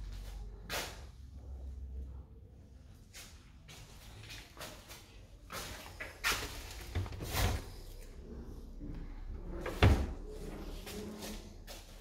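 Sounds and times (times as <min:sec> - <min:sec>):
cupboard doors banging: 0:09.6 - 0:10.2.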